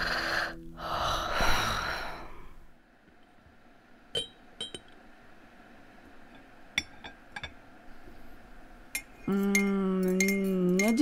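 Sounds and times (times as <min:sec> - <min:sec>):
dishes clinking: 0:04.2 - 0:05.0, 0:06.3 - 0:07.6.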